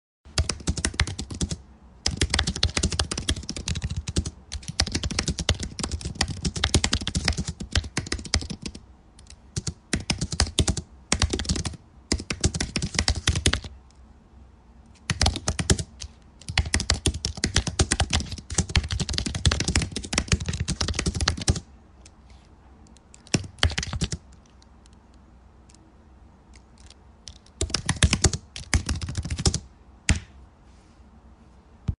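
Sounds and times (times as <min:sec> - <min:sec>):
fast keyboard typing: 0:00.3 - 0:13.8, 0:15.0 - 0:21.7, 0:23.2 - 0:24.4, 0:26.8 - 0:30.3.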